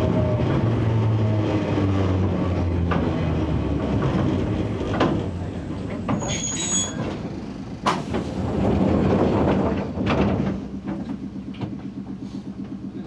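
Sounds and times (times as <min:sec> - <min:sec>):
high squeal: 0:06.1 - 0:07.2.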